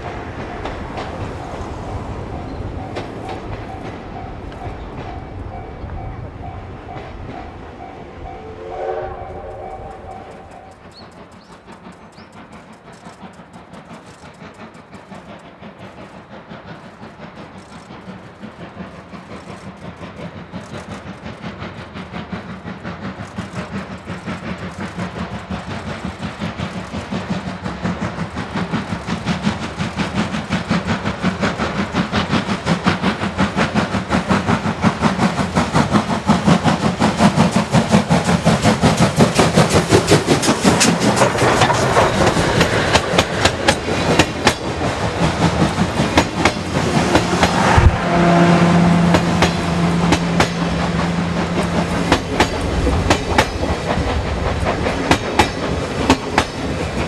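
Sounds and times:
steam locomotive chuffing: 0.0 - 57.0
steam whistle: 8.2 - 11.0, 47.3 - 52.1.

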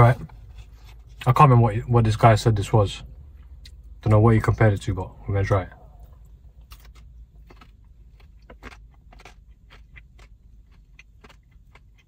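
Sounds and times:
low steady hum: 0.0 - 12.0
crunching and chewing: 6.0 - 12.0.

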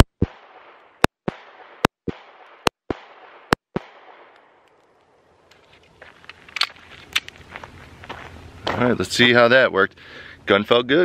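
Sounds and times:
pistol shots: 0.0 - 4.7.

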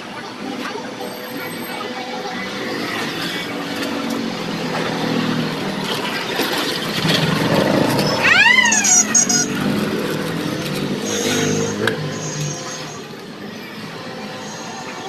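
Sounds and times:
vehicle engines running: 0.0 - 15.0
rising and falling tone: 8.0 - 9.6.

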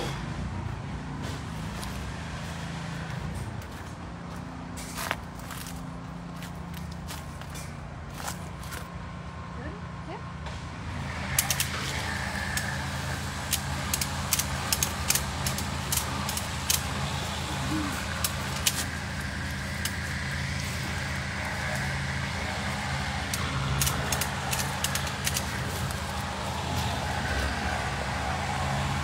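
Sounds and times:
pressure washer droning: 10.5 - 29.0
metallic clicks and rattles: 11.4 - 12.8, 13.5 - 17.0, 23.3 - 26.3.

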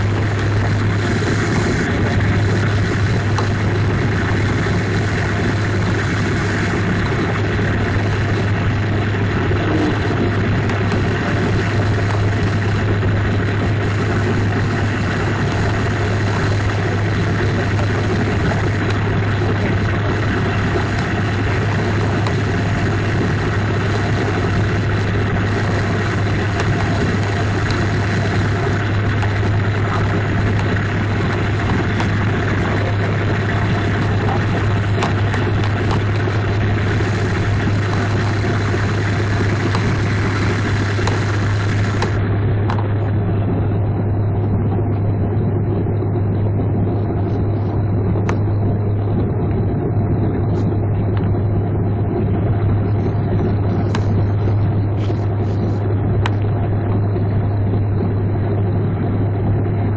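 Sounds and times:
hiss of engines and rushing air: 0.0 - 43.4
low cabin drone: 0.0 - 59.9.

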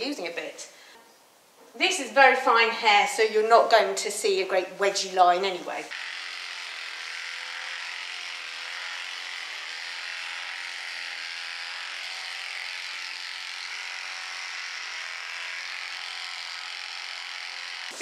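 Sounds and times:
electric clippers humming: 5.9 - 18.0.

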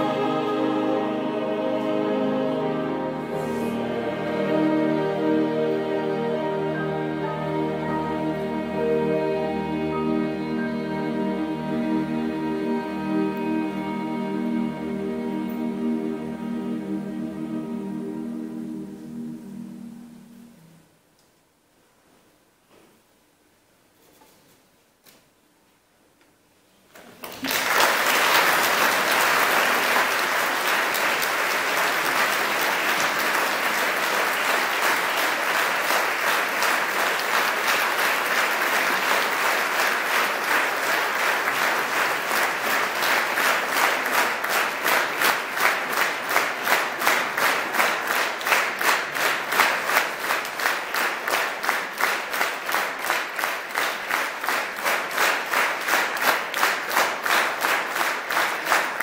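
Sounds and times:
audience applauding: 27.0 - 59.0.

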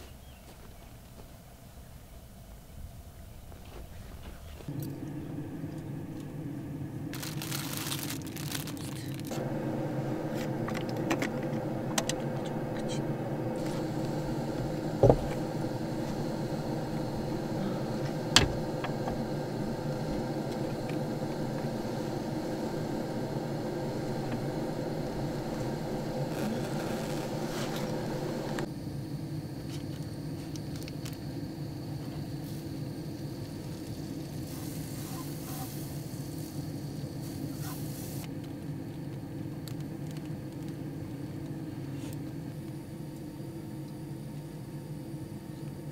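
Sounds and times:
car engine idling: 4.7 - 28.7
rustling: 7.1 - 9.4.

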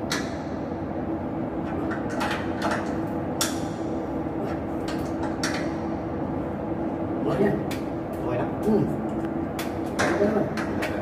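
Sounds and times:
steady low hum: 0.0 - 11.0.

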